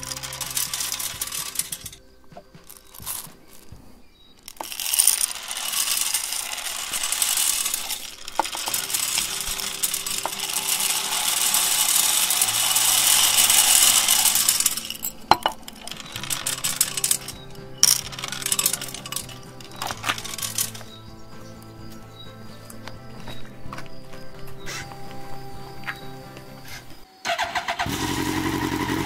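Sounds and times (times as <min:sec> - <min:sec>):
candies clicking: 0:00.0 - 0:02.0, 0:02.7 - 0:03.7, 0:04.4 - 0:21.0
candies rattling in metal pipe: 0:00.0 - 0:02.0, 0:02.7 - 0:03.7, 0:04.4 - 0:21.1.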